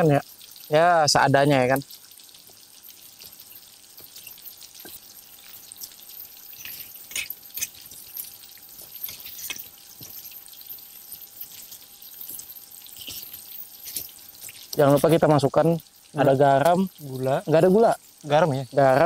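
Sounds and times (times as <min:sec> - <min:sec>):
chicken sizzling in oil: 0:00.0 - 0:19.0
oil popping and crackling: 0:00.0 - 0:19.0.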